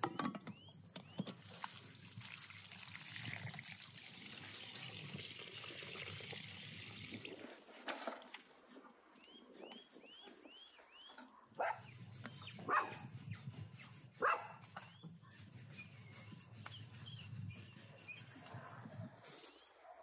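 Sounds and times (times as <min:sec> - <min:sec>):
bird chirps: 0:09.2 - 0:18.6
bird twittering: 0:11.8 - 0:18.5.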